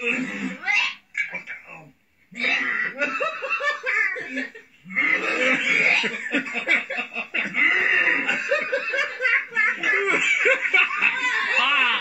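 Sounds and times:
people laughing: 0:02.5 - 0:12.0.

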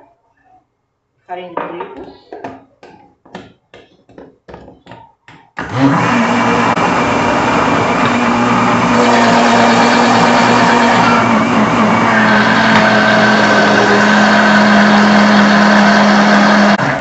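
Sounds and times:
countertop blender running: 0:05.6 - 0:17.0.

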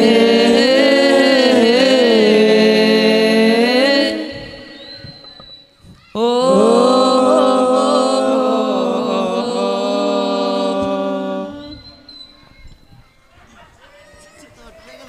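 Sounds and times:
men chanting a cappella: 0:00.0 - 0:05.3, 0:06.2 - 0:12.1.

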